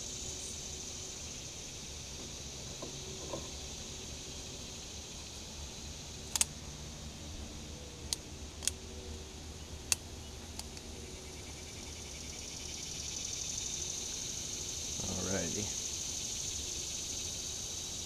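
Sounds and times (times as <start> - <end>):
high insect chirring: 0.0 - 6.8, 9.8 - 18.0
sharp clicks of parts handled: 6.3 - 6.5, 8.1 - 8.8, 9.9 - 10.9.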